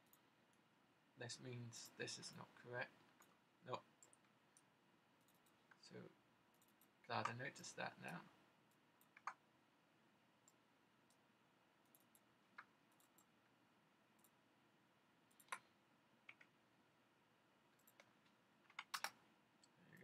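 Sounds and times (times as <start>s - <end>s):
computer mouse clicks: 4.0s - 5.8s, 6.5s - 7.4s, 8.1s - 9.4s, 11.8s - 13.3s, 14.2s - 14.4s, 15.3s - 16.6s, 17.8s - 19.8s.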